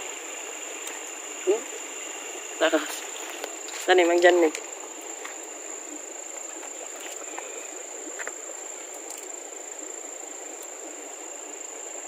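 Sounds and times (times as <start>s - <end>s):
insect chorus trilling: 0.0s - 12.0s
steady hiss: 0.0s - 12.0s.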